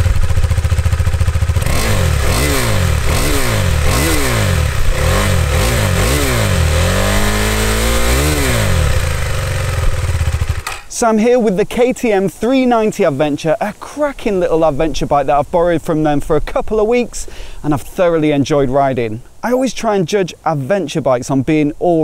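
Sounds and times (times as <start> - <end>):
motorcycle engine revving: 0.0 - 10.9.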